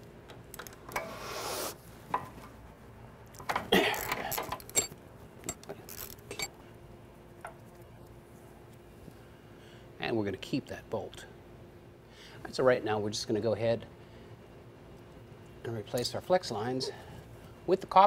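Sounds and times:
metal tools clinking and rattling: 3.5 - 6.5.

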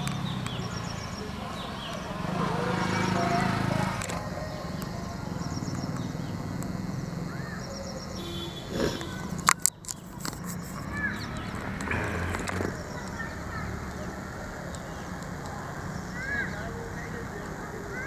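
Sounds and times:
bird chirps: 0.0 - 17.2
outdoor ambience: 0.0 - 18.0
sharp clicks: 3.8 - 7.4, 9.0 - 15.7.

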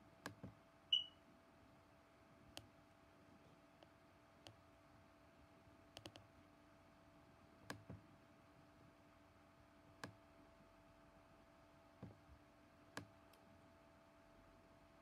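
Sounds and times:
faint steady hum: 0.0 - 15.0
computer mouse clicks: 3.8 - 4.6, 5.9 - 6.3, 10.0 - 10.2.

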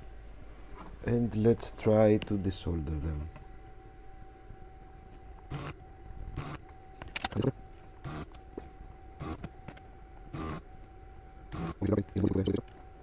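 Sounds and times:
desoldering vacuum pump bursts: 5.5 - 5.8, 6.4 - 6.6, 8.0 - 8.4, 9.2 - 9.5, 10.3 - 10.6, 11.5 - 11.9.

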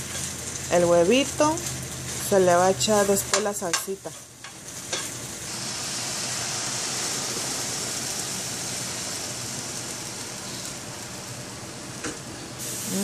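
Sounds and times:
loud sizzling hiss: 4.6 - 13.0
salsa pouring into hot skillet: 5.2 - 11.3.

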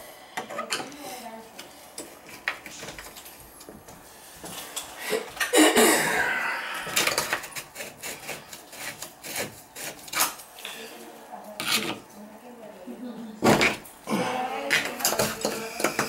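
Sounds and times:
gloved hands rubbing and scraping: 7.2 - 10.4.

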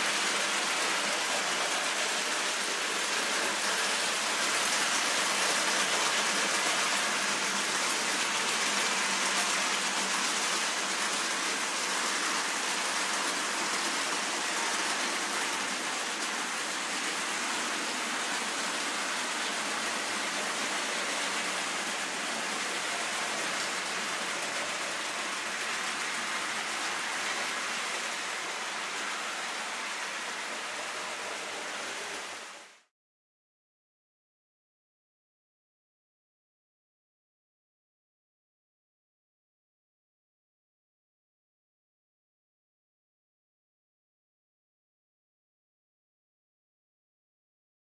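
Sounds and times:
model trains rolling on track: 0.0 - 32.8.

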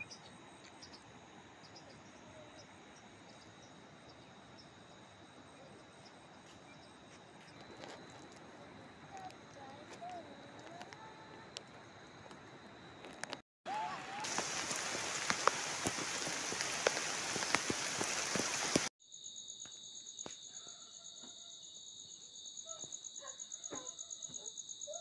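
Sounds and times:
insects trilling: 0.0 - 25.0
rushing water: 13.7 - 18.9.

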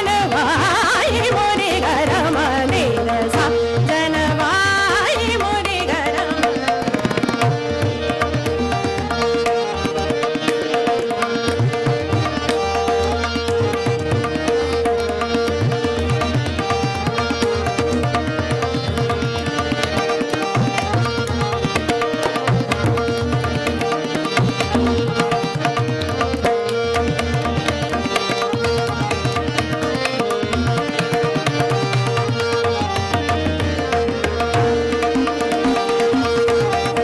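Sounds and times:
woman singing: 0.0 - 7.0
harmonium: 0.0 - 37.0
tabla strokes: 0.0 - 37.0
tanpura drone: 0.0 - 37.0.

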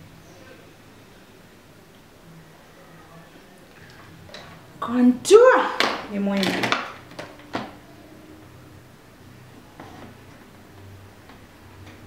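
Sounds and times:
faint low hum: 0.0 - 5.3.

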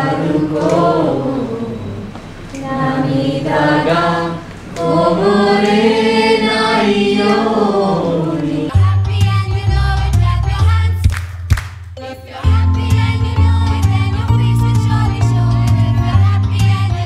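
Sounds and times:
choir singing: 0.0 - 10.6.

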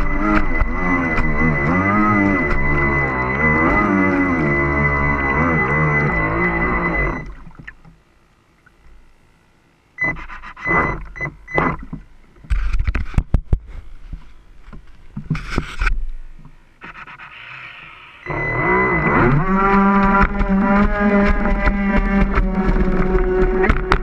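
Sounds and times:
small boat motor whining: 0.0 - 8.4, 16.4 - 24.0.

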